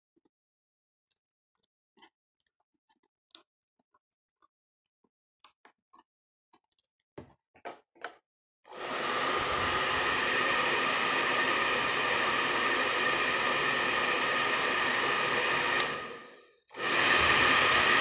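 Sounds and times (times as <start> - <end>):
hot-air blower rushing: 8.7 - 18.0.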